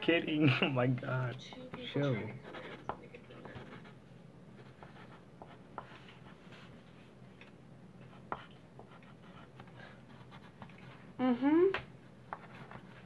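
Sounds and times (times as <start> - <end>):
pencils scratching on paper: 1.5 - 4.0, 4.6 - 6.9.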